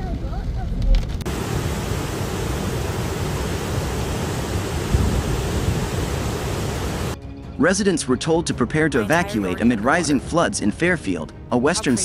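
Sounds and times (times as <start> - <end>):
floodwater rushing: 1.3 - 7.2.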